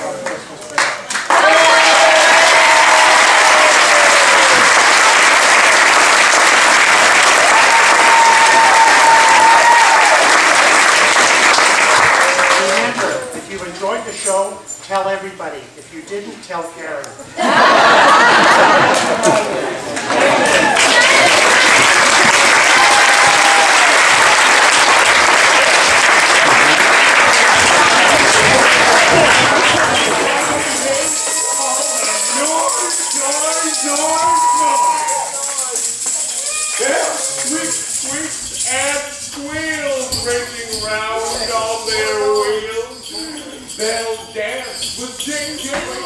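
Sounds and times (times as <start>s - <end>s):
audience applauding: 0.0s - 13.3s, 17.7s - 37.8s.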